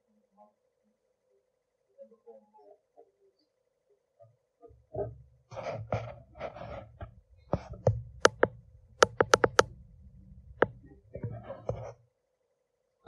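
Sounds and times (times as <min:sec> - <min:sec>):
sharp knocks and clicks: 0:05.0 - 0:12.0.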